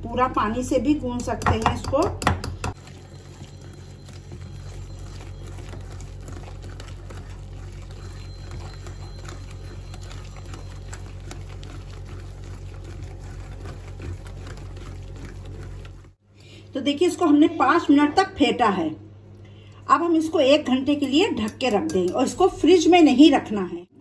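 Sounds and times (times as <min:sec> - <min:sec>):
hand beating batter: 0:01.1 - 0:02.8, 0:21.4 - 0:22.4
low hum: 0:02.7 - 0:16.8.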